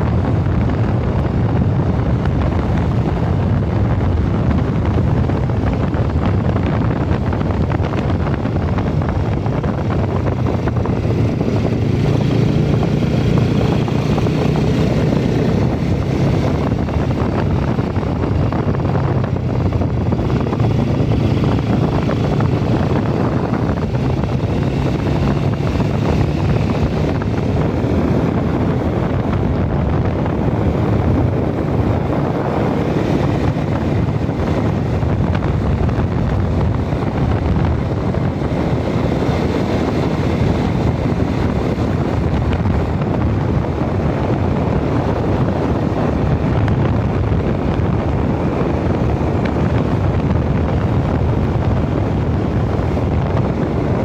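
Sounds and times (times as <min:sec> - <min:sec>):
motorbike engine running: 0:00.0 - 0:54.0
wind rushing over microphone: 0:00.0 - 0:54.0.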